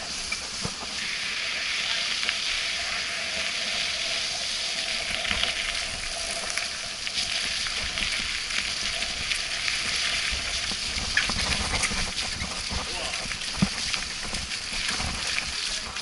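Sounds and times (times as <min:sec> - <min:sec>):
bike tyres rolling on muddy trail: 0:00.0 - 0:16.0.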